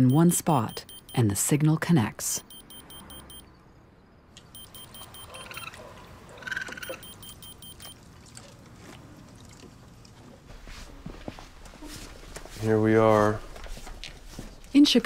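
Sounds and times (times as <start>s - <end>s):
rapid electronic beeps: 0.0s - 1.3s, 2.4s - 3.4s, 4.6s - 5.7s, 6.8s - 7.9s.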